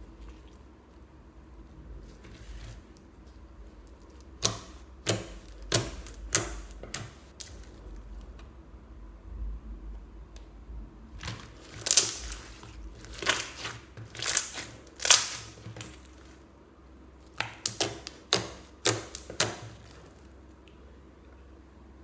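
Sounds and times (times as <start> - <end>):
slime squelching: 0.0 - 8.5, 11.1 - 16.6, 17.2 - 20.8
slime popping and clicking: 17.3 - 19.7.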